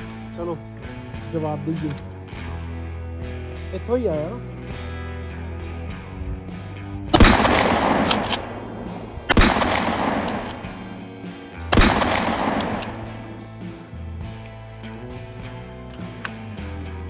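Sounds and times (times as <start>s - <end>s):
gunshots with echo: 7.2s - 13.6s.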